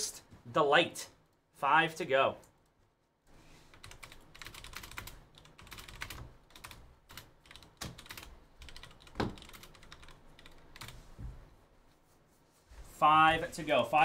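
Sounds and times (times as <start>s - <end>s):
keyboard typing: 3.7s - 11.0s.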